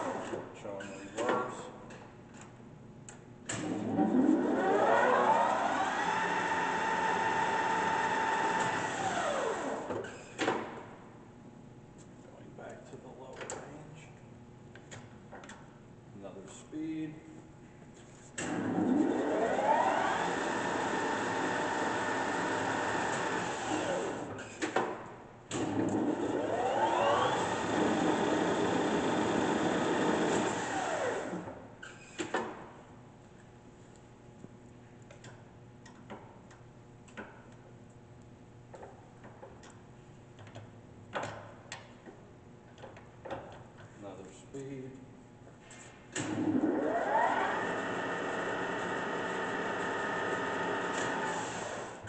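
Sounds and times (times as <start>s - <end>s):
rising gear whine: 3.8s - 9.8s, 18.6s - 24.2s, 26.2s - 29.4s, 46.3s - 51.9s.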